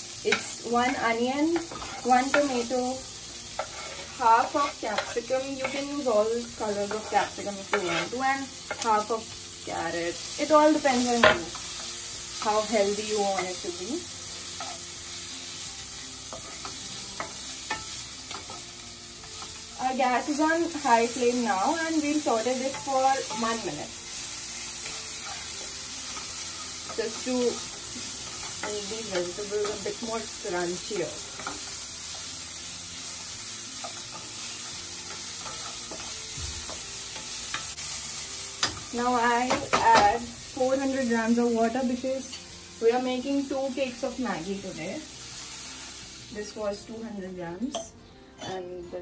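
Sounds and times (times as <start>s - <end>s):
vegetables sizzling in a pan: 0.0s - 49.0s
spatula knocking and scraping pan: 3.6s - 8.9s.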